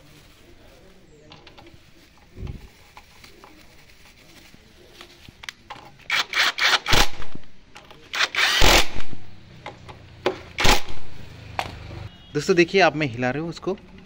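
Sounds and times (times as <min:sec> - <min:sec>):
cordless power driver bursts: 0:08.1 - 0:09.2.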